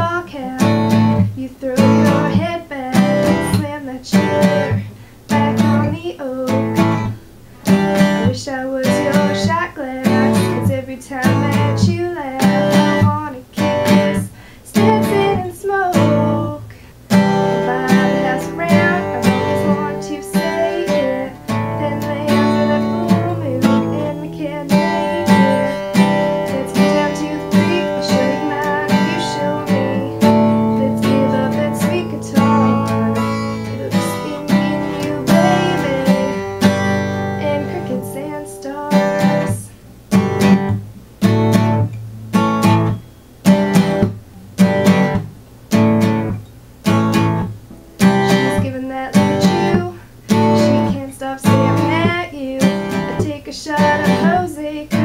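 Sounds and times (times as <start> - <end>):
acoustic guitar strumming: 0.0 - 55.0.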